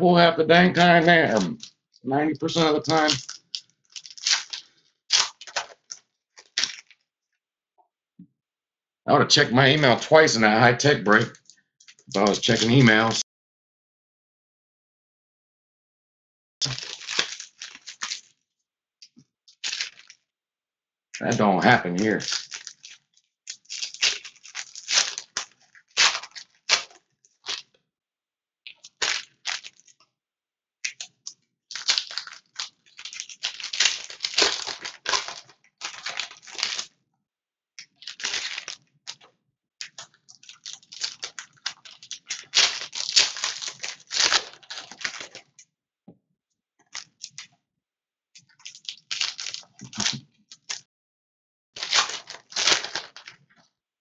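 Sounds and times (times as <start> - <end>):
foil wrappers tearing and crinkling: 2.5 - 7.0, 11.9 - 13.2, 16.6 - 18.4, 19.5 - 20.2, 21.4 - 27.7, 28.7 - 30.0, 30.8 - 36.9, 37.9 - 45.6, 48.4 - 50.8, 51.8 - 53.4.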